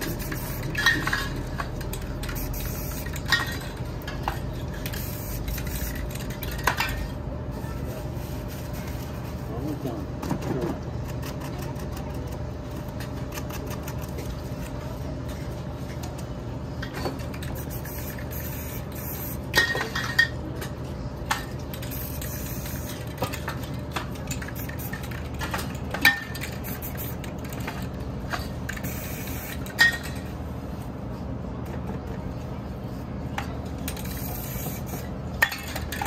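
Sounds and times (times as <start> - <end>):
spray paint hissing: 0.0 - 3.6, 4.6 - 6.8, 17.3 - 19.7, 21.7 - 25.5, 26.1 - 27.8, 28.7 - 29.9, 33.8 - 35.1
spray cans clinking and knocking: 0.0 - 7.1, 16.8 - 20.4, 21.3 - 30.2, 33.4 - 36.0.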